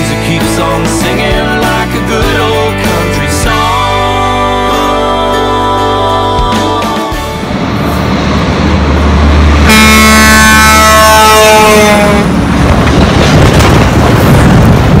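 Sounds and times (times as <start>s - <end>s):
truck engine and road noise: 0.0s - 15.0s
truck air horn: 9.6s - 12.3s.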